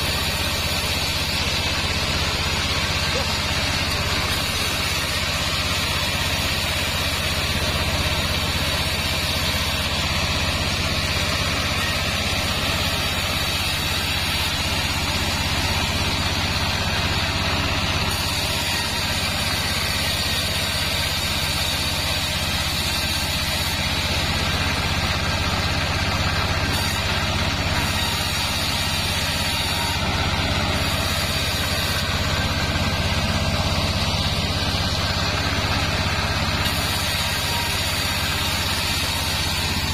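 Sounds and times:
low machine hum: 0.0 - 22.8
band saw ripping boards: 0.0 - 39.9.

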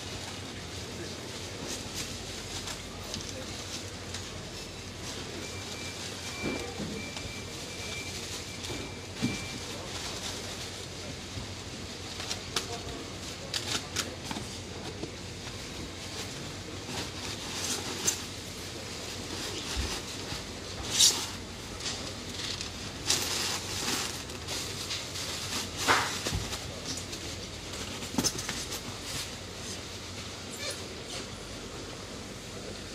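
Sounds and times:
plastic and paper crinkling: 0.0 - 30.8
steady background noise: 0.0 - 32.9.

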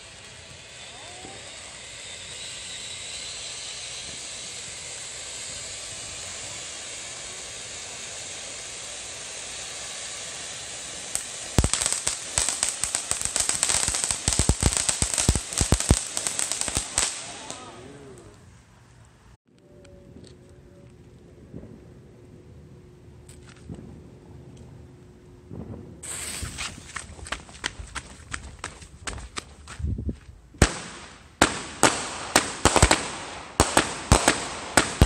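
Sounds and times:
firework crackling pops: 0.0 - 17.7, 25.5 - 29.6, 30.6 - 35.0
firework fountain hissing: 0.0 - 17.9, 26.0 - 26.9, 30.6 - 35.0.

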